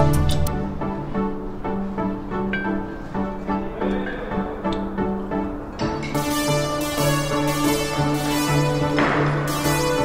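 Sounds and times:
instrumental background music: 0:00.0 - 0:10.0.

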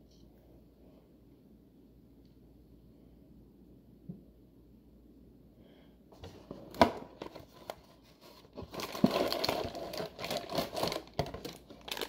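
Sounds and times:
plastic packaging crinkling: 0:07.2 - 0:12.0.

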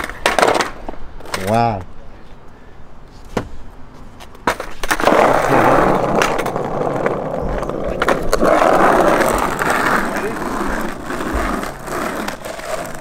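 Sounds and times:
skateboard clacks: 0:00.0 - 0:01.8, 0:04.2 - 0:13.0
skateboard wheels rolling on asphalt: 0:00.0 - 0:02.0, 0:03.2 - 0:13.0.

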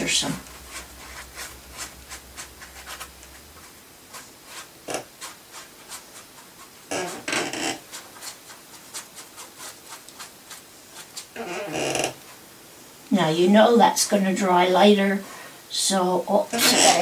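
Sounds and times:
paintbrush scratching on paper: 0:00.0 - 0:11.4.

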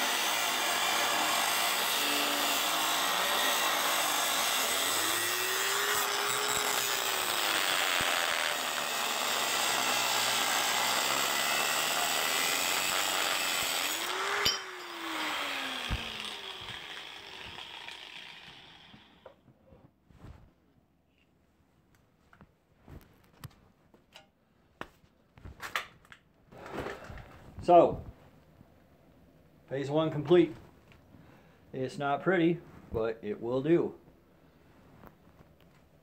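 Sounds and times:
angle grinder cutting metal: 0:00.0 - 0:19.3.

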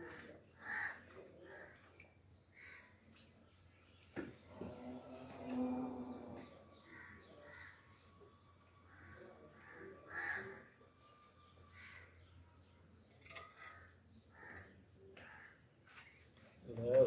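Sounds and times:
crows cawing: 0:00.6 - 0:01.8, 0:08.9 - 0:10.8, 0:11.7 - 0:12.3, 0:13.4 - 0:15.6.

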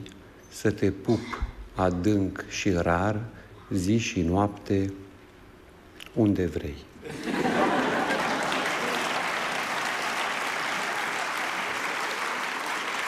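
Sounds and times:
audience applauding: 0:07.2 - 0:13.0.

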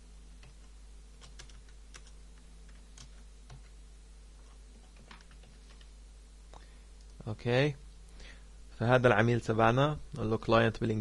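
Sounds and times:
keyboard typing: 0:00.4 - 0:03.7, 0:04.8 - 0:05.9.

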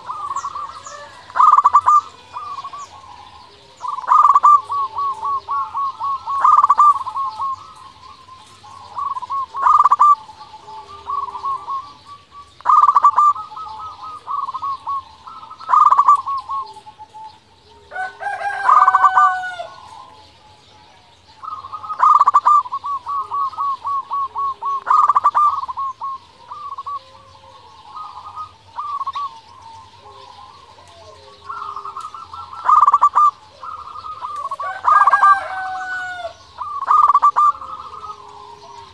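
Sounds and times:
rooster crowing: 0:00.0 - 0:07.6, 0:17.7 - 0:20.8, 0:33.8 - 0:38.9
dove cooing: 0:00.0 - 0:38.9.

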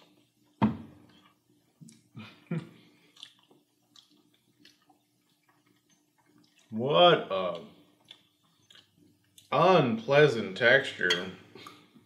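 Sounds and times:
wet chewing sounds: 0:01.2 - 0:06.8, 0:07.5 - 0:09.5.

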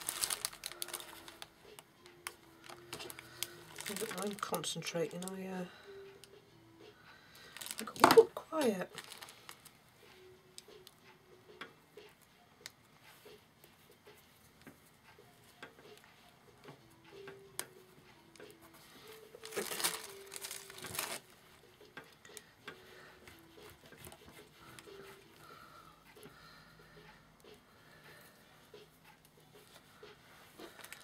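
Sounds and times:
fabric and lace rustling: 0:00.0 - 0:01.5, 0:02.6 - 0:05.4, 0:07.5 - 0:09.8, 0:18.7 - 0:21.6.

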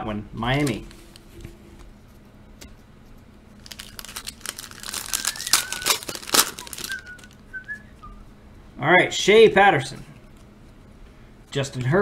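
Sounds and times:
plastic wrapper tearing and crinkling: 0:03.6 - 0:07.4
person whistling: 0:04.8 - 0:08.4.

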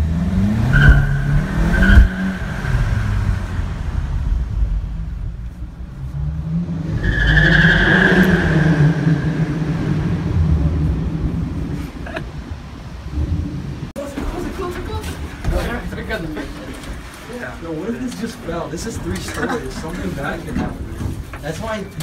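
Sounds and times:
car engine revving: 0:00.0 - 0:13.9
tyre squeals: 0:00.7 - 0:03.2, 0:07.0 - 0:09.6.

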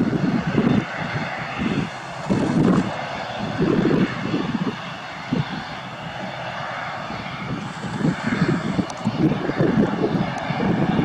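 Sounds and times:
turboprop engines running: 0:00.0 - 0:11.0.

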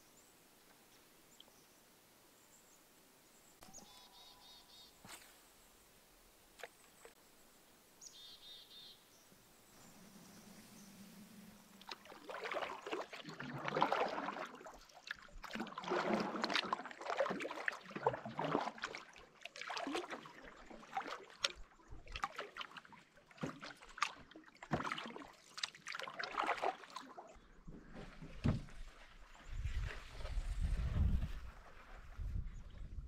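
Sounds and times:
paddle swishing through water: 0:11.5 - 0:33.0.

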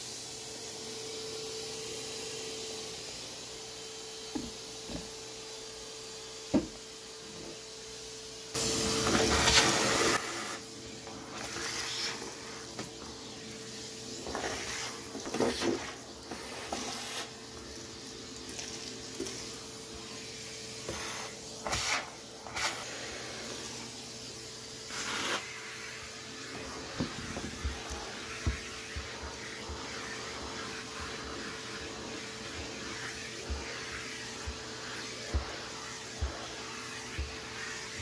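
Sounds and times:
vacuum cleaner motor hum: 0:00.0 - 0:38.0
vacuum sucking air and grit: 0:08.6 - 0:17.9, 0:19.2 - 0:38.0.

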